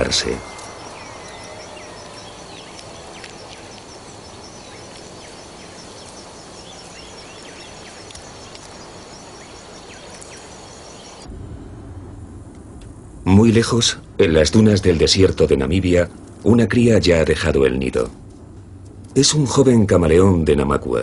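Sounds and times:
high bird chirps: 0.0s - 11.3s
pulsing high insect trill: 0.0s - 11.3s
background hiss: 0.0s - 21.0s.

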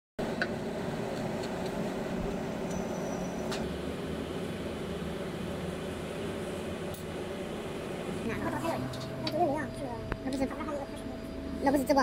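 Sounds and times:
machine hum: 0.2s - 12.0s.

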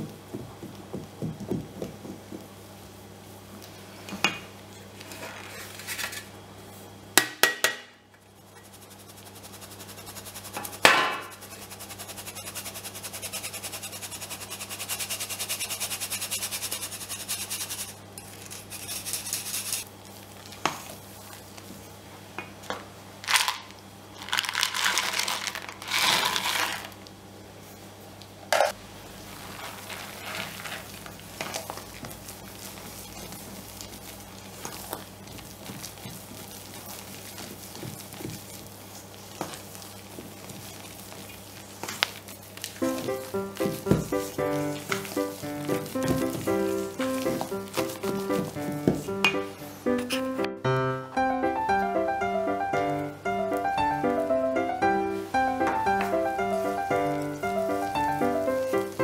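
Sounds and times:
batter scraping: 4.9s - 6.4s, 8.4s - 21.6s, 24.2s - 27.0s, 29.1s - 50.3s, 55.4s - 59.0s.

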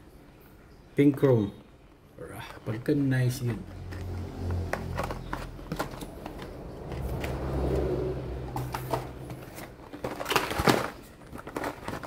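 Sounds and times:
plastic packaging clicks and rustles: 2.4s - 7.8s, 8.5s - 12.0s
low hum: 3.5s - 10.0s.

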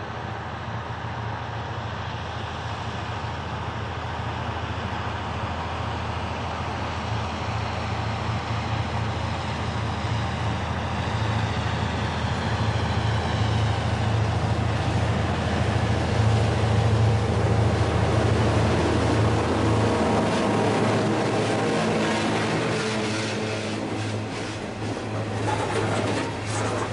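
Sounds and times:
diesel locomotive engine drone: 0.0s - 26.9s
train wheels clicking on rails: 20.6s - 26.9s.

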